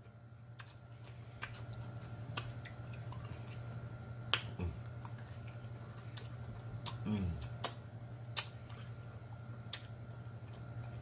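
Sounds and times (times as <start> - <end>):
wet smacking mouth sounds: 4.3 - 9.0.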